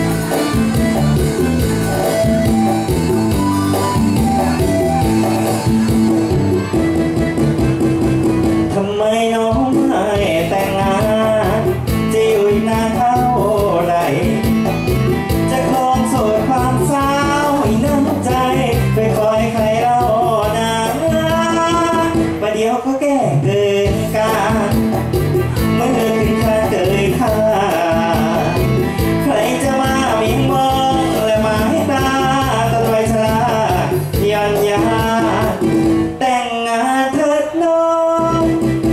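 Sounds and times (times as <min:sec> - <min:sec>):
backing band track: 0:00.0 - 0:38.9
man singing into a microphone: 0:08.6 - 0:38.9.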